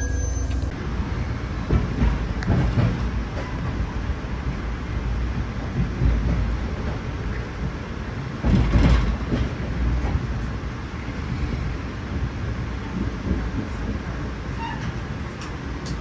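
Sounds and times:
train rumbling on rails: 0:00.0 - 0:16.0.

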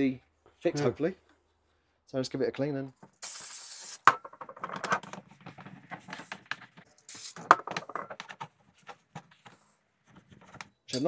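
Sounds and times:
aerosol spray hiss: 0:03.2 - 0:04.0, 0:07.1 - 0:07.4
plastic part knocking: 0:07.5 - 0:08.4.

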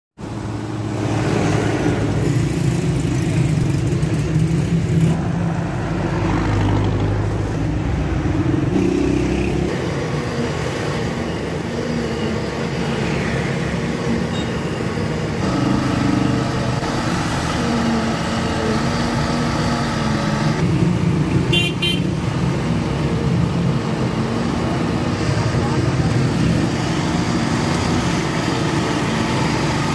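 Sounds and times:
diesel mixer truck drone: 0:00.2 - 0:29.9
road traffic engines: 0:00.2 - 0:29.9
vehicle horn honking: 0:21.5 - 0:22.2.

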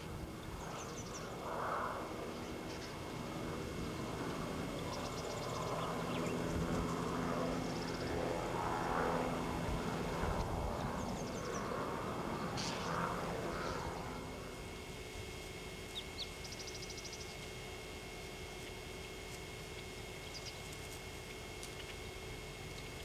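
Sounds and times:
broad rushing noise: 0:00.0 - 0:15.5
small birds chirping: 0:00.4 - 0:01.4, 0:02.3 - 0:03.1, 0:03.8 - 0:08.2, 0:10.7 - 0:14.5, 0:15.8 - 0:17.6, 0:20.2 - 0:20.7.

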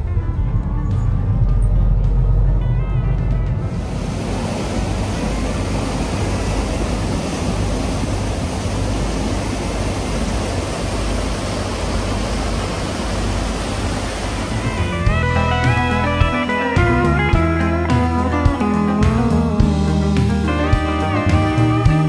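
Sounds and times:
steady rushing noise: 0:00.0 - 0:22.0
plucked guitar music: 0:14.5 - 0:22.0.

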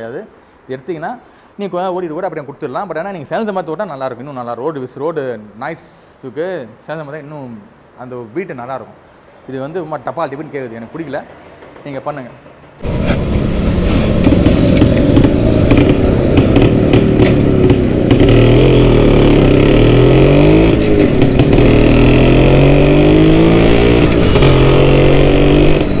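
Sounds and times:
motorcycle two-stroke engine: 0:11.4 - 0:26.0.

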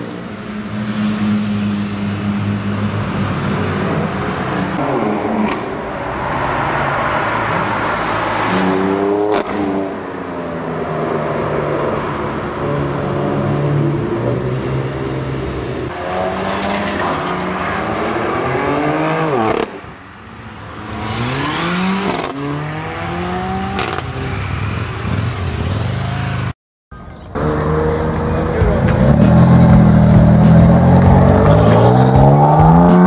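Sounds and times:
car engine revving: 0:20.8 - 0:24.2, 0:27.4 - 0:33.0.

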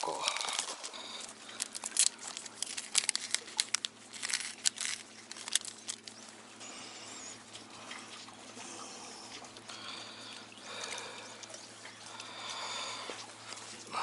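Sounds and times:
plastic packet crinkling: 0:00.0 - 0:06.4.

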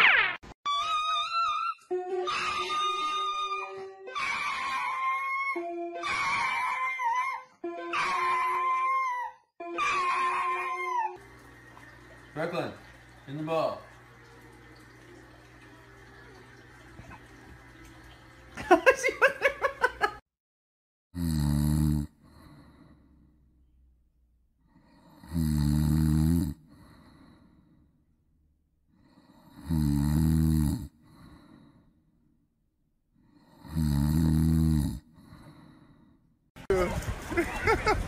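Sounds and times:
dog snoring: 0:21.2 - 0:23.1, 0:24.7 - 0:27.6, 0:29.0 - 0:31.8, 0:33.3 - 0:36.0.

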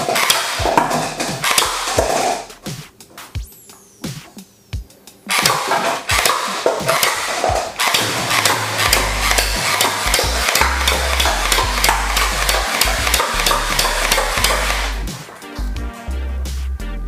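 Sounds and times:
toy rifle rapid clicking: 0:00.0 - 0:02.4, 0:05.3 - 0:15.0.

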